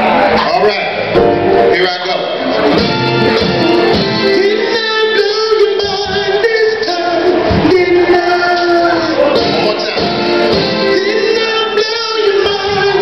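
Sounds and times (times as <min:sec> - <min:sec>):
backing band playing soul music: 0:00.0 - 0:13.0
male vocal group singing: 0:04.1 - 0:13.0.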